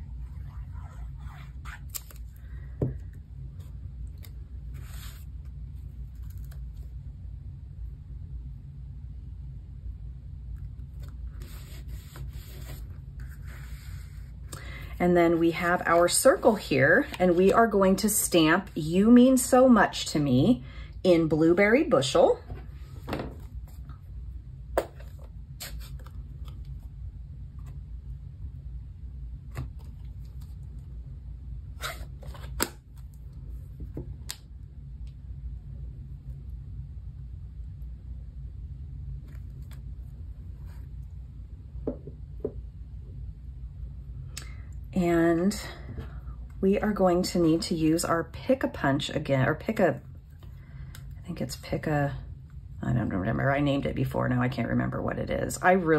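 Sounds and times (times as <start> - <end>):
low steady hum: 0.0 - 55.9
paper rubbing: 0.1 - 2.2.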